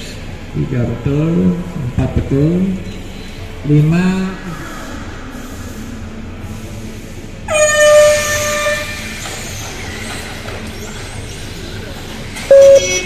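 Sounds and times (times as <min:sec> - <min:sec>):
horn steady note: 0:12.5 - 0:13.0.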